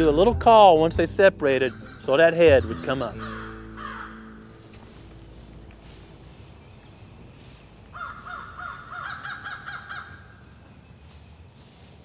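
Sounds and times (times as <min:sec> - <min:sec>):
turkey call yelps: 0:01.7 - 0:04.5, 0:07.9 - 0:10.4.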